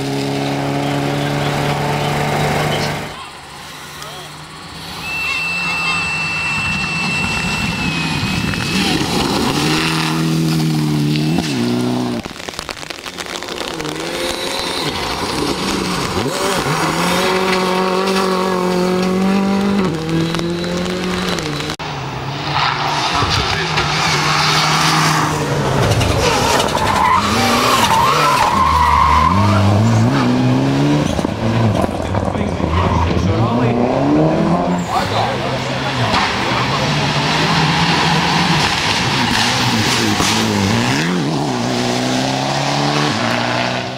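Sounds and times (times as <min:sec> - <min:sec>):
rally car engines at high revs: 0:00.0 - 0:43.9
gravel spray: 0:07.1 - 0:18.6.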